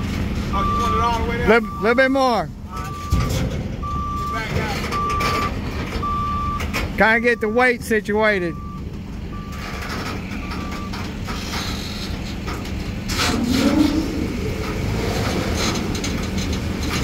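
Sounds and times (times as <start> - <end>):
reversing beeper: 0.0 - 7.8
forklift engine running: 0.0 - 17.0.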